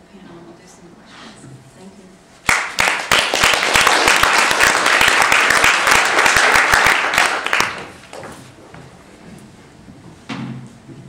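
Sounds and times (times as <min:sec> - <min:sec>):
audience applauding: 0:02.5 - 0:08.3.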